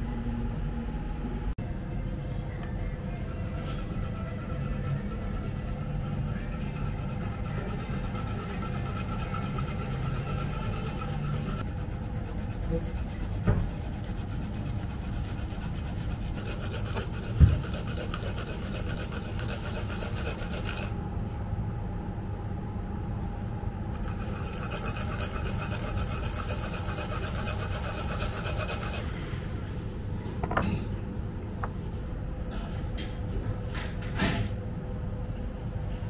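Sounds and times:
root scraping on metal grater: 0:03.2 - 0:13.2, 0:13.8 - 0:21.0, 0:24.0 - 0:29.0.

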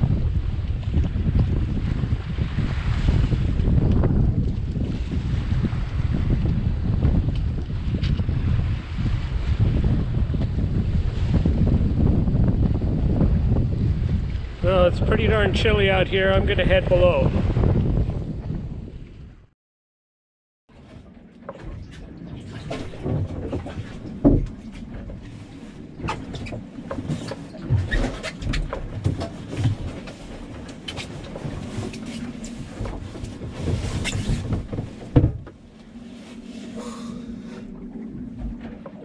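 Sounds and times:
knocks and thumps on ladder steps: 0:32.7 - 0:35.6.

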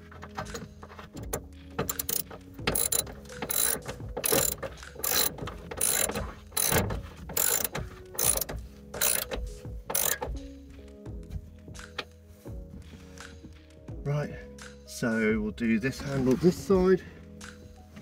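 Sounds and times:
ratchet spanner clicking: 0:01.8 - 0:10.4.

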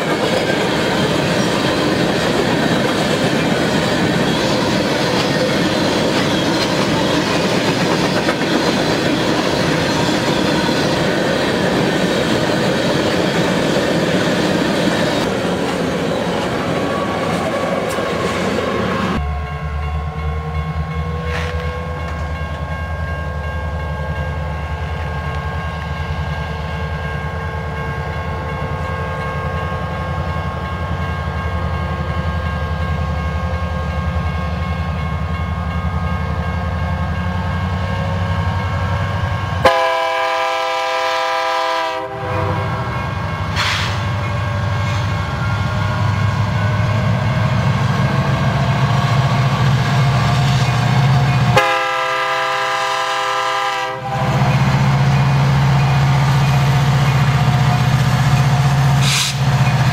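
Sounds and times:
diesel locomotives rumbling: 0:00.0 - 0:59.9
locomotive horn blast: 0:39.6 - 0:42.9, 0:51.5 - 0:54.5.

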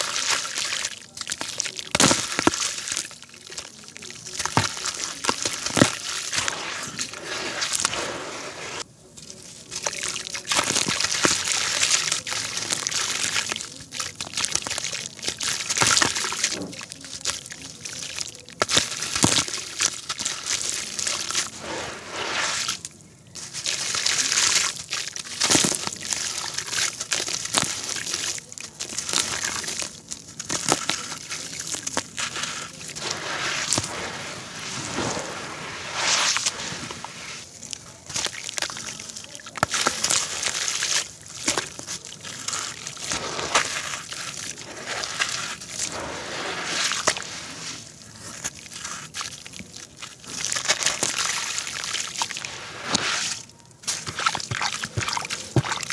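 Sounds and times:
gritty concrete scraping: 0:00.0 - 0:55.9
hand swishing through slurry: 0:04.4 - 0:08.9, 0:20.6 - 0:22.9, 0:27.7 - 0:49.2, 0:50.4 - 0:55.9.

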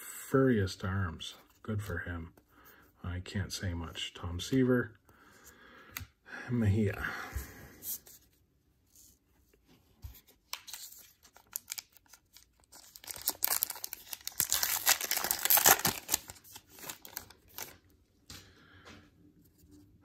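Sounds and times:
wrapper tearing and crinkling: 0:10.7 - 0:17.8.

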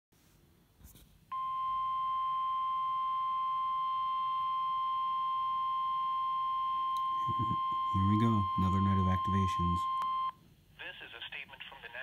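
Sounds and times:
steady alarm beep from radio: 0:01.3 - 0:10.3.

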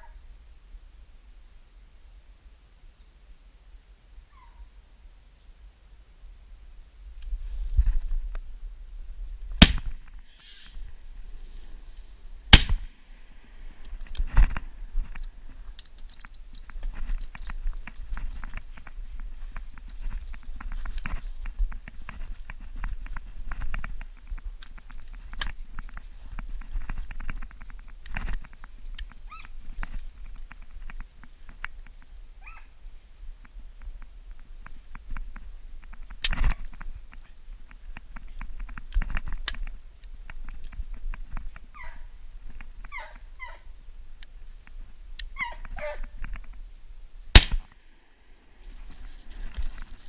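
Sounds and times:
faint ticks and crackles: 0:00.0 - 0:50.0
gunshot with echo: 0:12.5 - 0:12.9, 0:47.4 - 0:47.7
twigs cracking underfoot: 0:13.8 - 0:32.1, 0:47.4 - 0:50.0.

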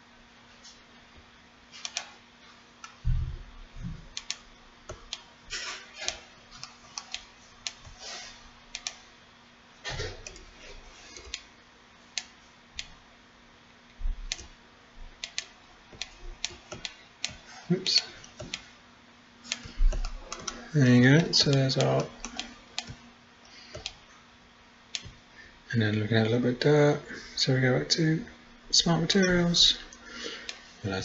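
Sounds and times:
dull low thumps: 0:03.0 - 0:04.1
mouse and keyboard clicking: 0:08.7 - 0:09.0, 0:14.3 - 0:14.5, 0:19.5 - 0:20.6, 0:21.2 - 0:23.0, 0:24.9 - 0:25.2.

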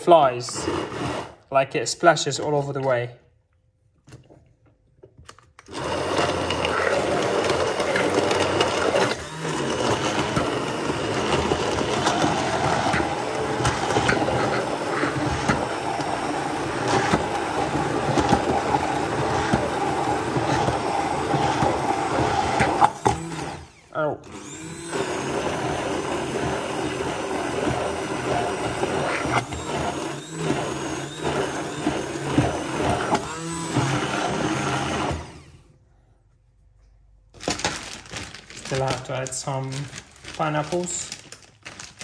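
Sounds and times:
hand blender running: 0:00.2 - 0:01.5, 0:05.7 - 0:35.7.

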